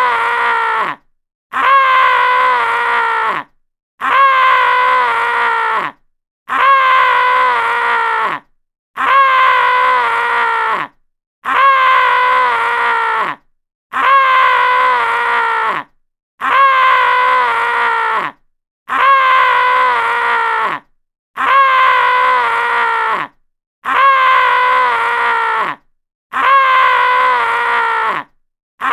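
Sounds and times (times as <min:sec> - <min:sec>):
man screaming: 0:21.4 - 0:28.9.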